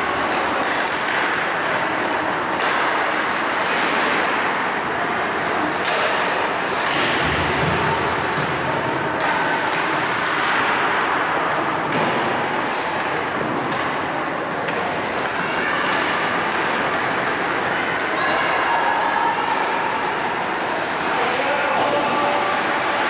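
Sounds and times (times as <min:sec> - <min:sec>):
skate blades scraping ice: 0:00.0 - 0:04.5, 0:19.3 - 0:22.9
arena hall noise: 0:00.0 - 0:23.0.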